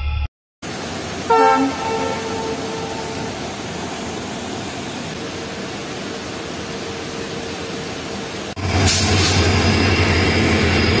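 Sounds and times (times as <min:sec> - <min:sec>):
train horn: 0:01.2 - 0:03.5.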